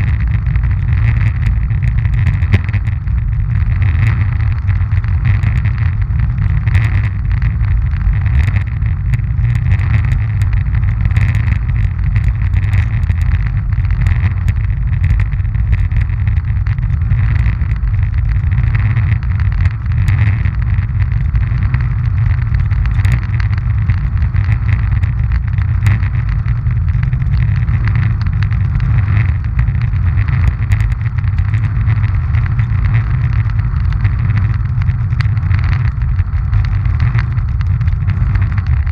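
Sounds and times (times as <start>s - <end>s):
roller ski wheels rumbling on asphalt: 0.0s - 38.9s.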